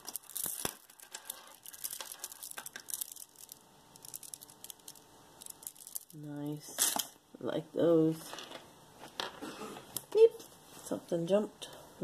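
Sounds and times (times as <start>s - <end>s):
glass beads clicking and rattling: 0.0s - 6.3s.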